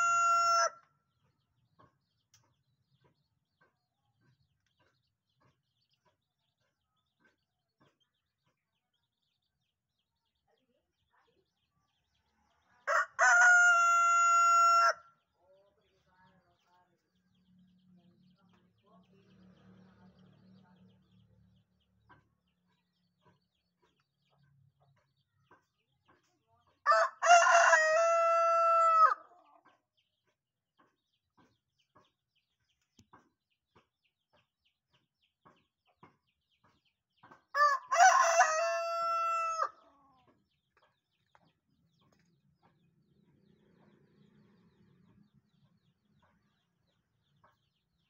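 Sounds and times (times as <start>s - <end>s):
rooster crowing: 0.0s - 0.8s, 12.9s - 15.0s, 26.9s - 29.2s, 37.6s - 39.8s.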